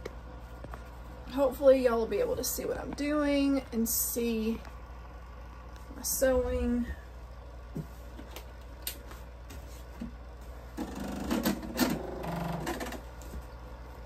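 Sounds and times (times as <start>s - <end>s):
sewing machine stitching: 10.8s - 13.0s.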